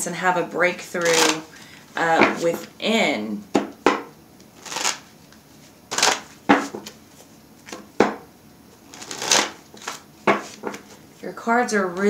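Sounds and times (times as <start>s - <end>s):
cards being shuffled: 1.0s - 1.5s, 4.6s - 7.9s, 8.9s - 11.0s.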